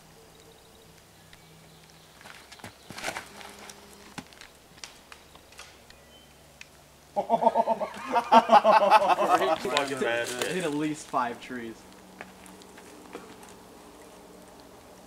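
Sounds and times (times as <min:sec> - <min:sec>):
disc knocking against trees: 0:01.8 - 0:06.0
footsteps scuffing on dirt: 0:02.0 - 0:04.8, 0:09.2 - 0:11.2, 0:12.2 - 0:13.6
loud rhythmic laughter: 0:07.2 - 0:09.7.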